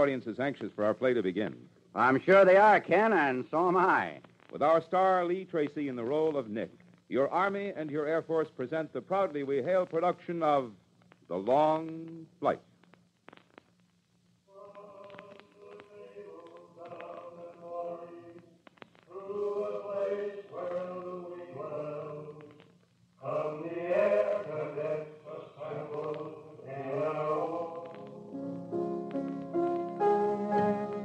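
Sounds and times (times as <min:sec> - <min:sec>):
choir singing held notes: 0:14.5 - 0:18.4, 0:19.1 - 0:22.5, 0:23.2 - 0:31.0.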